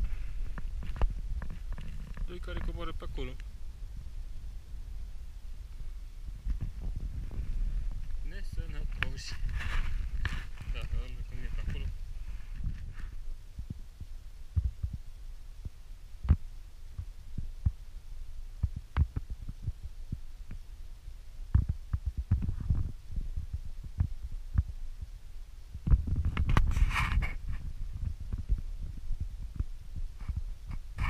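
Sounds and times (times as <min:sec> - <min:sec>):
low thumps: 0:00.0 - 0:15.0
rumble: 0:00.0 - 0:31.0.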